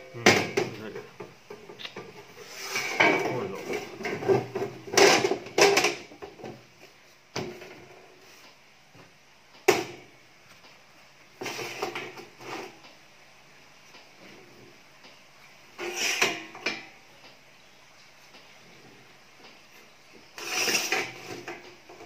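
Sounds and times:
metal clunks and scrapes: 0:00.0 - 0:06.7, 0:11.4 - 0:12.8, 0:15.8 - 0:17.0, 0:19.7 - 0:22.0.

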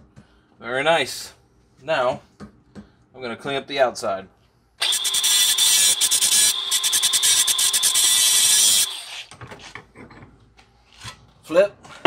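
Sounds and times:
grinder on metal pipe: 0:04.8 - 0:09.3.

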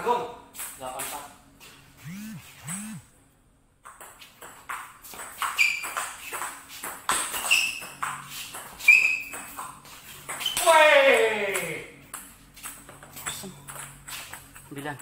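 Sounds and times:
table tennis ball hitting paddles: 0:03.8 - 0:14.6.

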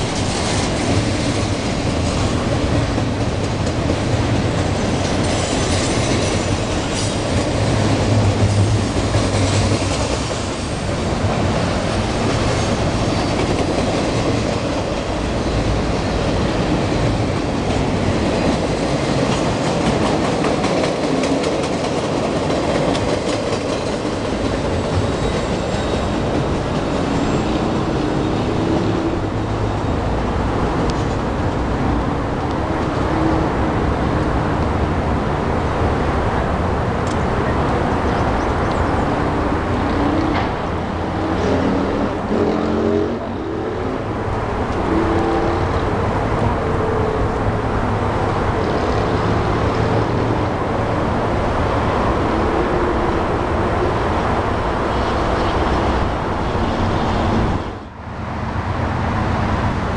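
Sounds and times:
freight train wheels clicking: 0:00.0 - 0:29.7.

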